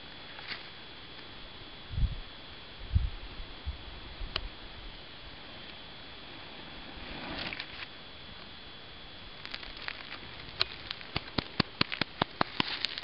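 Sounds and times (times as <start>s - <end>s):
fire crackling and popping: 9.2s - 13.0s.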